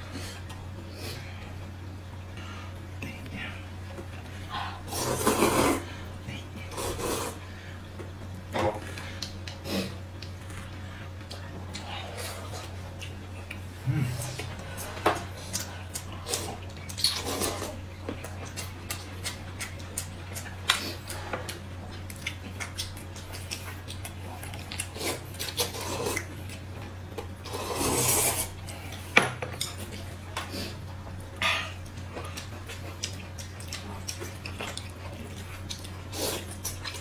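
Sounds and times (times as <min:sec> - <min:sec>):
steady low hum: 0:00.0 - 0:37.0
noodle slurping: 0:04.9 - 0:05.9, 0:27.4 - 0:28.6
chewing: 0:06.6 - 0:37.0.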